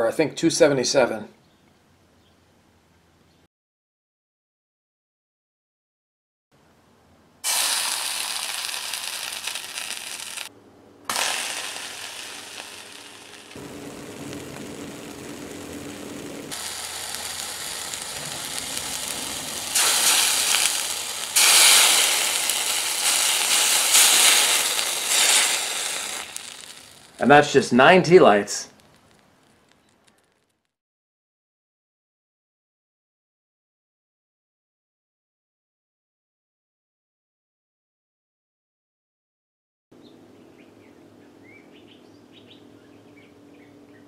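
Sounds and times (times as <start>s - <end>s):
water sizzling in hot pan: 7.4s - 10.5s, 11.1s - 27.5s.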